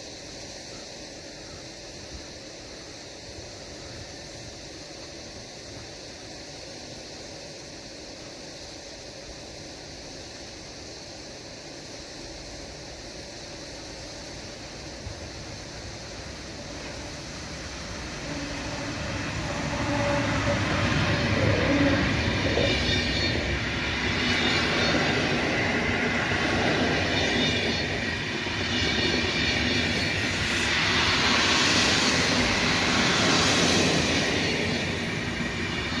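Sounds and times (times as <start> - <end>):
train wheels rumbling on rails: 10.2 - 36.0.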